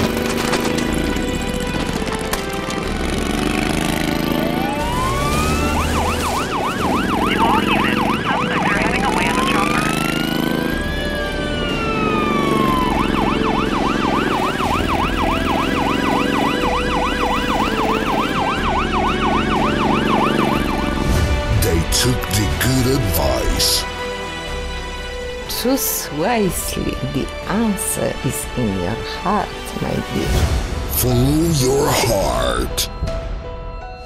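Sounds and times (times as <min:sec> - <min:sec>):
police siren wailing and yelping: 0:04.3 - 0:21.0.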